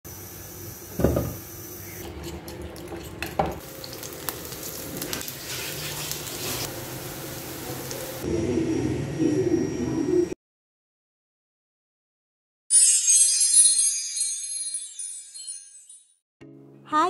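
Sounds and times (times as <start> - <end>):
slices sizzling in hot oil: 0.1 - 8.2
cookware knocks: 1.0 - 1.4, 3.2 - 3.6.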